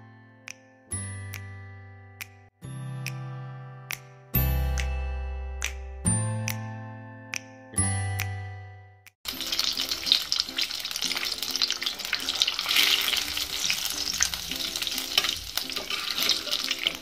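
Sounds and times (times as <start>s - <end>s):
food deep-frying in hot oil: 9.3s - 17.0s
metal skimmer stirring: 12.0s - 17.0s.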